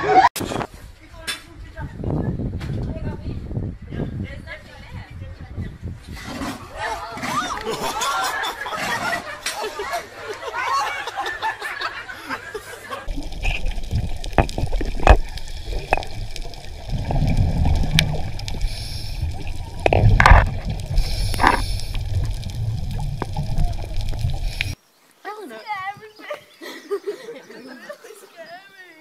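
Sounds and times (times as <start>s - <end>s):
clicks and bubbling: 13.1s - 24.8s
underwater rumble: 13.1s - 24.8s.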